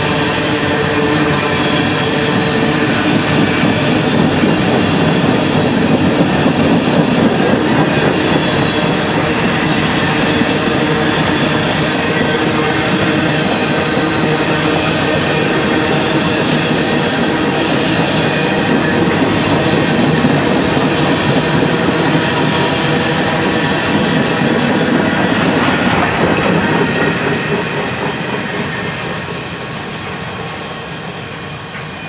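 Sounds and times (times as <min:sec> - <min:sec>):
freight train wheels on rails: 0:00.0 - 0:32.0.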